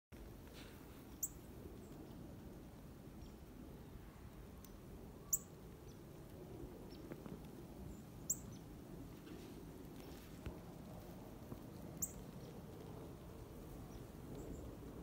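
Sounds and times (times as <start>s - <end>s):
bird chirping: 1.1s - 2.0s, 5.3s - 6.0s, 7.9s - 8.7s, 12.0s - 12.2s.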